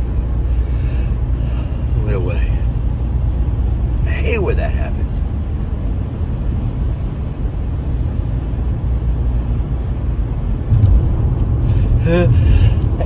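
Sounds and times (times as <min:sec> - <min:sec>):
car road and engine noise: 0:00.0 - 0:13.0
loud bump: 0:10.7 - 0:11.4.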